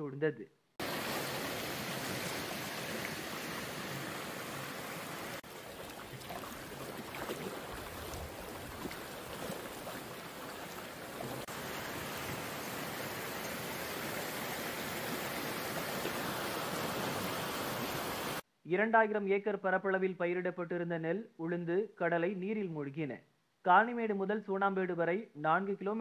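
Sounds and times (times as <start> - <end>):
floodwater rushing: 0.8 - 18.4.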